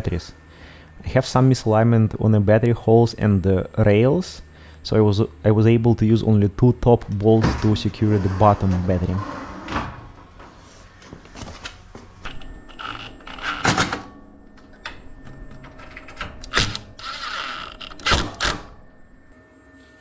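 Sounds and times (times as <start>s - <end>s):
metal knocks and clanks: 7.3s - 10.6s.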